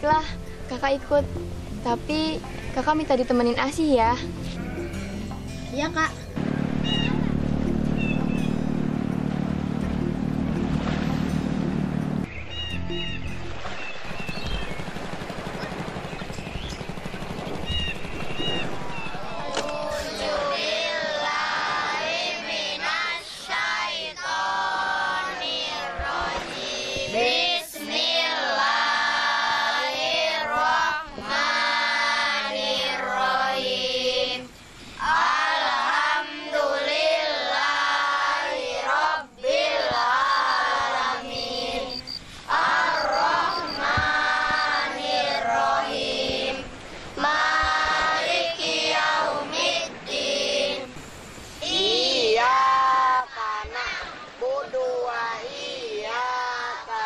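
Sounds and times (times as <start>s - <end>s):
children chanting in unison: 19.1s - 51.0s, 51.6s - 57.0s.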